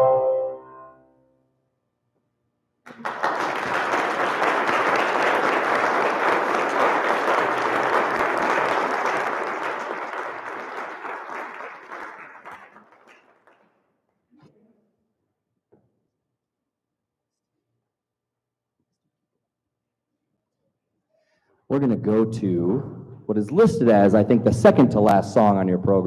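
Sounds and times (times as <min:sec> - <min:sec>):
audience applauding: 0:02.9 - 0:13.7.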